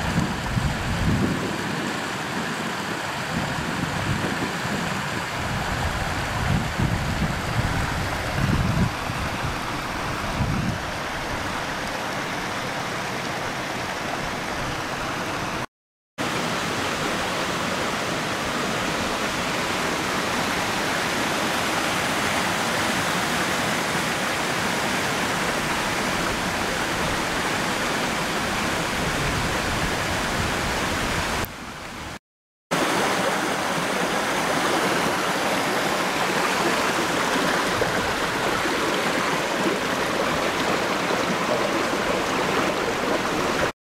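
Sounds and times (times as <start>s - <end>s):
stream rushing over rocks: 0.0s - 43.8s.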